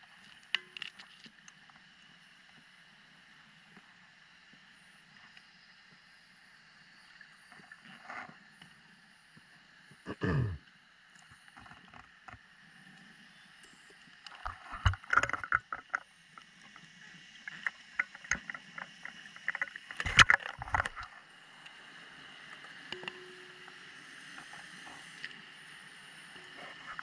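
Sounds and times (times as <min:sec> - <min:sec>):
faint steady hiss: 0:21.0 - 0:27.0.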